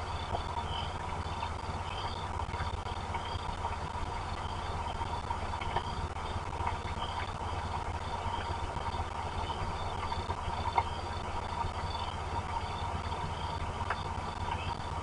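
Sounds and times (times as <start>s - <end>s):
heavy rain: 0.0s - 15.0s
sharp drip taps: 2.1s - 7.4s, 8.1s - 11.0s.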